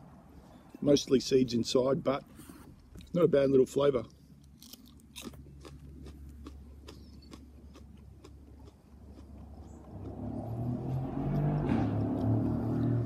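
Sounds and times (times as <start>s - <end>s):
person chewing chilli: 4.1s - 13.0s.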